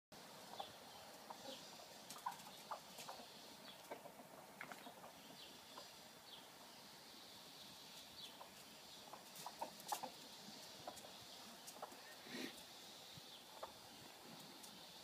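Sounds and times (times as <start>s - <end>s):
hen clucking softly: 0.4s - 6.1s, 8.2s - 12.6s, 13.4s - 14.9s.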